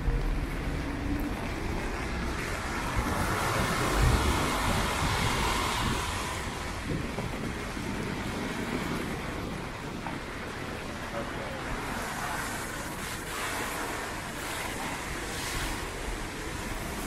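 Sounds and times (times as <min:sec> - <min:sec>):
low traffic rumble: 0:00.0 - 0:17.0
tyres hissing on wet asphalt: 0:00.1 - 0:17.0.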